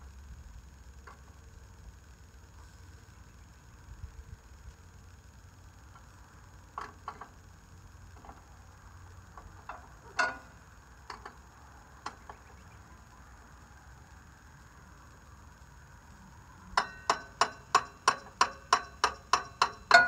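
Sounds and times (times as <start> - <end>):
hand tools clicking and knocking: 16.8 - 20.0.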